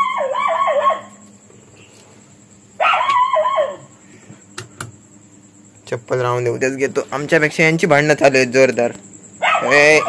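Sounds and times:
dog crying: 0.0s - 1.2s, 2.8s - 3.9s, 9.4s - 10.0s.

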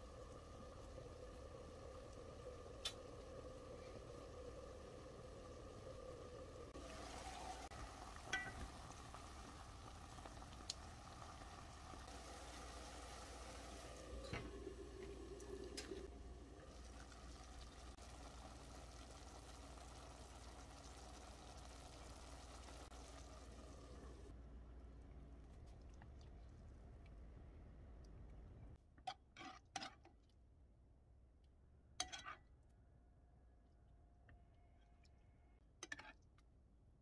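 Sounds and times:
pot simmering: 0.0s - 28.8s.

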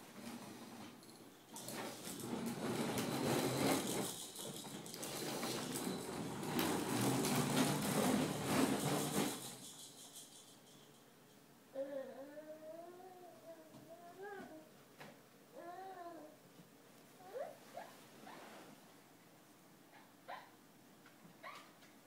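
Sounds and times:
plastic wheels rattling on wood floor: 0.2s - 10.8s.

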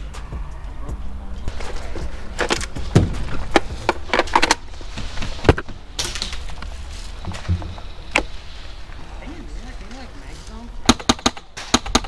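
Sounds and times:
low outdoor background: 0.0s - 12.0s
heavy thuds: 1.6s - 8.4s.

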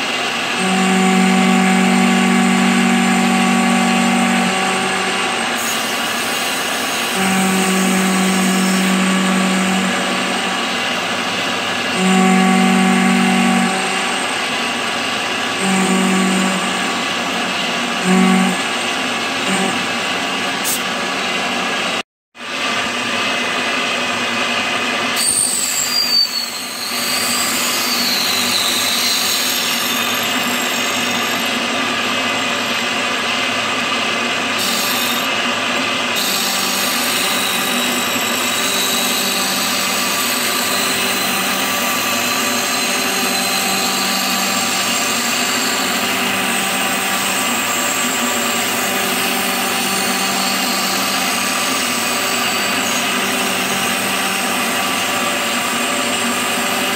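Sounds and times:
wavering high whine: 0.0s - 21.9s, 36.1s - 56.9s
milling machine cutting metal: 0.0s - 22.0s, 22.6s - 56.9s.

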